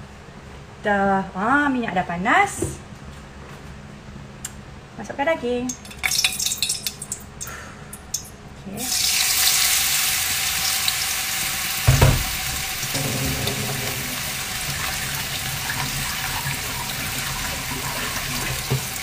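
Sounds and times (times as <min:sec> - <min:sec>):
meat sizzling in hot oil: 0:05.8 - 0:07.2, 0:08.8 - 0:19.0
thump: 0:11.9 - 0:14.0.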